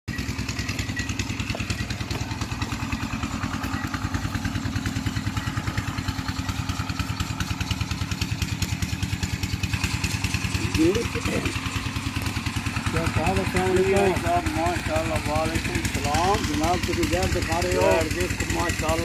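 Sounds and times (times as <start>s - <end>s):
engine running steadily: 0.1s - 19.0s.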